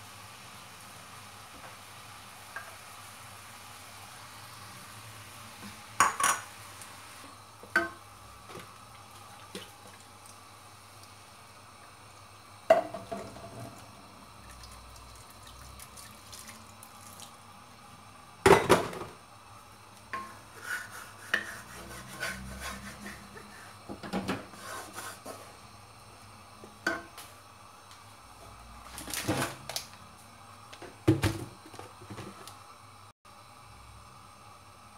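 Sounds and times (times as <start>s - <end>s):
water pouring into a wok: 13.3s - 17.4s.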